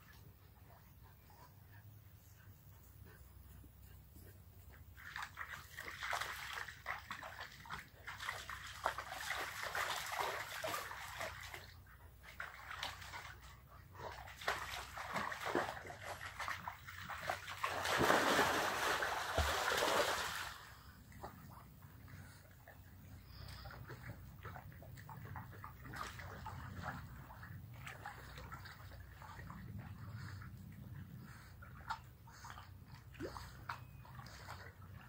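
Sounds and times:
dogs splashing in water: 4.7s - 35.0s.

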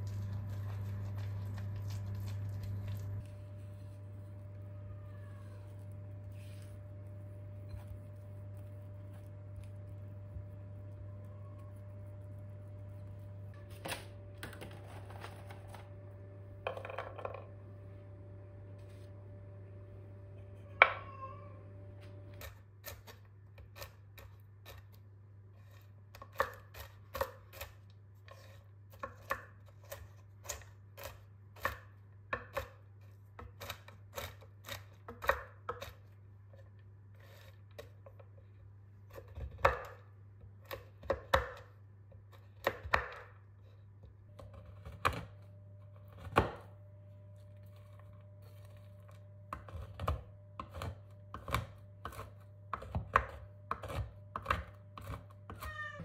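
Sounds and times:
low hum: 0.0s - 22.4s.

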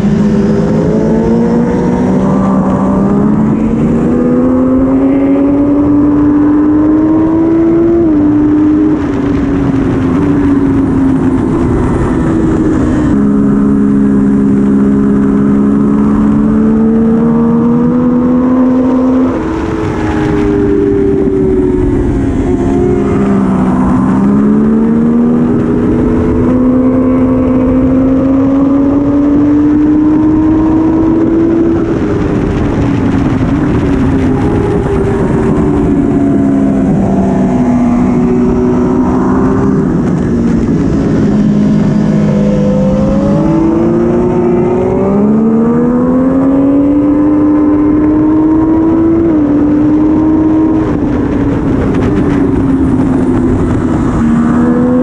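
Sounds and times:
motorcycle engine accelerating: 0.0s - 55.0s
wind rushing: 0.0s - 55.0s.

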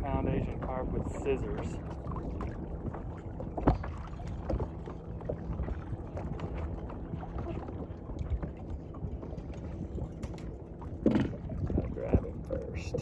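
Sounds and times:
wind and water rumble: 0.0s - 13.0s.

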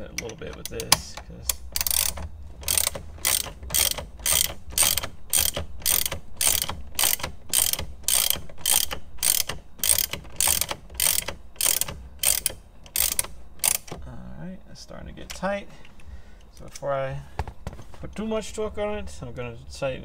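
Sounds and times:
hand ratchet clicking: 0.0s - 14.0s.

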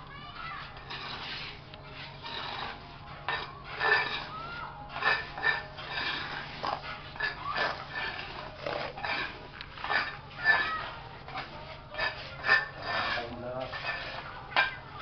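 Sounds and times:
scoop scraping wet cement: 0.6s - 14.3s.

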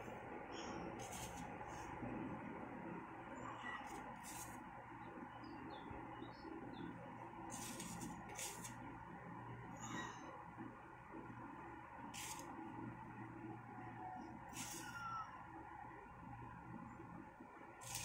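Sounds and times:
steady low hum: 0.0s - 18.0s
short bursts of hiss: 12.2s - 12.4s, 14.6s - 14.9s.

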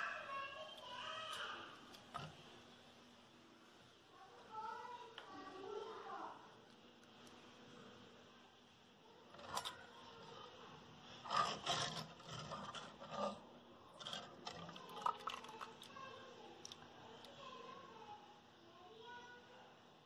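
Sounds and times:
whisk scraping clay pot: 11.2s - 15.8s
buttermilk splashing: 14.3s - 16.8s.

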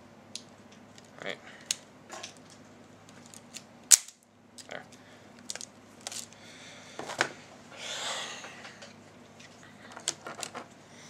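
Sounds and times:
breathy exhale: 6.4s - 7.0s.

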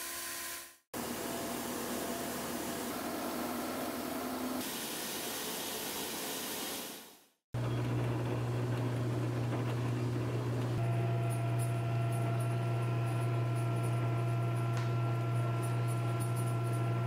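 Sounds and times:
machine low hum: 7.6s - 17.0s
machine rolls whirring: 7.6s - 17.0s.

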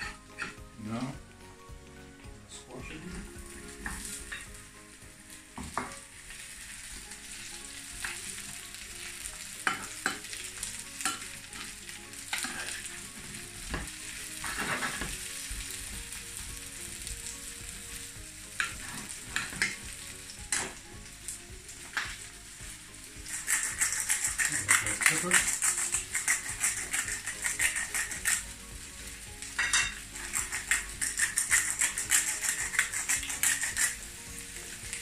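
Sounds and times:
squash sizzling in a skillet: 2.7s - 35.0s
spatula scraping pan: 12.3s - 13.5s, 23.2s - 28.6s, 29.6s - 34.1s.

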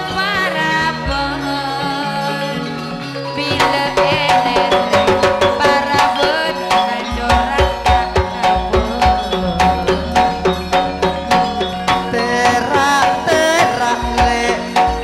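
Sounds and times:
held melody notes: 0.0s - 15.0s
hand drum strokes: 4.5s - 15.0s
deep bass line: 8.7s - 14.8s.

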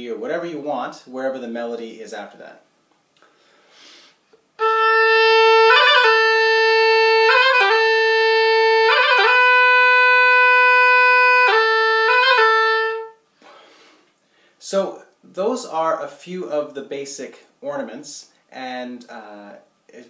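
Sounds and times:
oboe with grace-note ornaments: 4.6s - 13.2s.

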